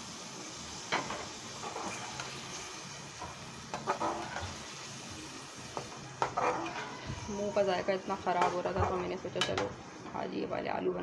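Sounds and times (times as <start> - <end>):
spoon scraping and clinking pan: 6.2 - 7.0.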